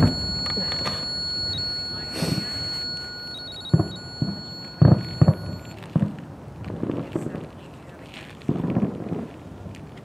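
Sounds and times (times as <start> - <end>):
short high electronic beeps: 0.0 - 5.8
thin steady high tone: 0.0 - 5.8.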